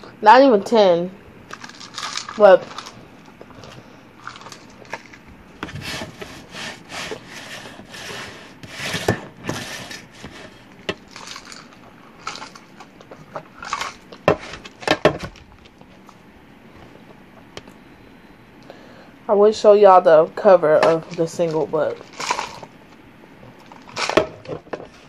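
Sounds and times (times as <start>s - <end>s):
rubbing and scraping: 4.3s - 12.8s.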